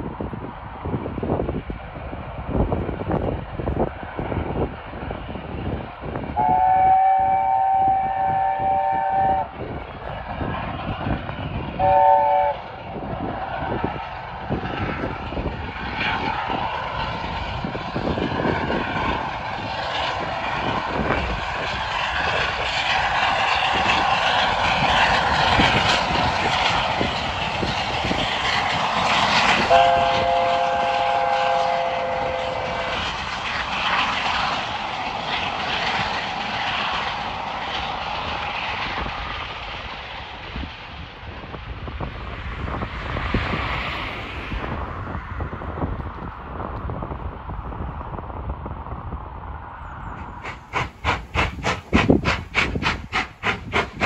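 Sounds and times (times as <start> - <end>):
train running past: 0.0 - 54.0
wind on microphone: 0.0 - 54.0
steam locomotive chime whistle: 6.4 - 9.5, 11.8 - 12.6, 29.7 - 33.1.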